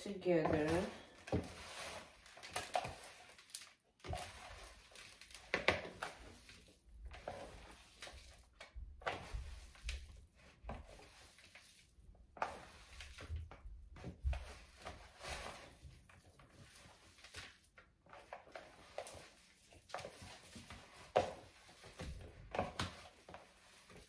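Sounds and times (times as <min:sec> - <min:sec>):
meat squishing: 0:01.1 - 0:13.3.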